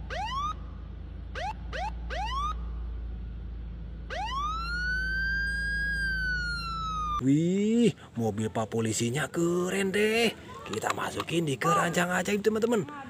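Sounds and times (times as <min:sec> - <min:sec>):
police siren whooping and wailing: 0:00.0 - 0:00.7, 0:01.3 - 0:02.7, 0:04.1 - 0:07.2
steady low hum: 0:00.0 - 0:13.0.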